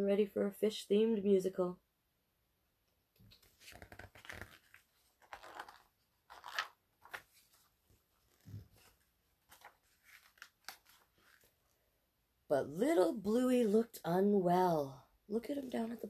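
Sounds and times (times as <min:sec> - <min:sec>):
paper pages rustling: 0:03.2 - 0:11.7.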